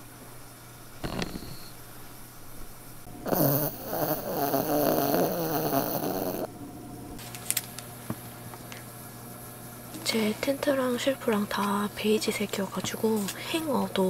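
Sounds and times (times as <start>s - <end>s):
dog snoring: 1.0s - 1.9s, 3.2s - 6.5s.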